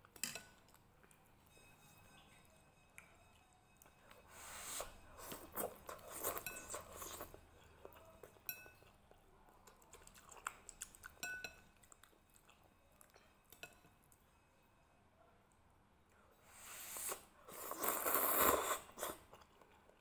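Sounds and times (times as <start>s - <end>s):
chopsticks clinking on bowl: 0.1s - 4.2s, 5.2s - 9.0s, 10.0s - 14.2s
chewing: 3.8s - 13.9s, 17.5s - 20.0s
slurping noodles: 16.5s - 19.3s.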